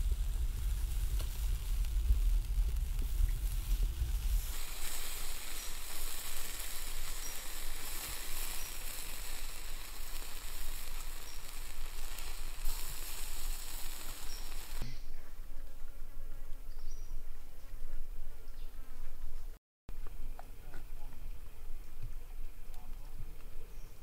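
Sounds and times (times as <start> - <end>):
fat sizzling over embers: 0.0 - 14.9.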